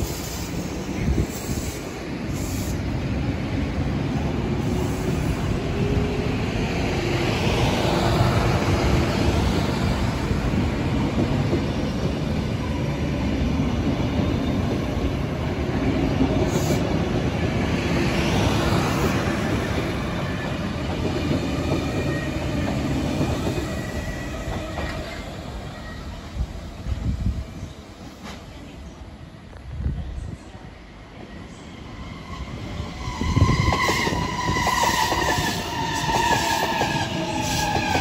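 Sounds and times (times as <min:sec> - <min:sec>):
electric train rumbling past: 0:00.0 - 0:38.0
train wheel clatter on rails: 0:20.4 - 0:25.3, 0:33.5 - 0:38.0.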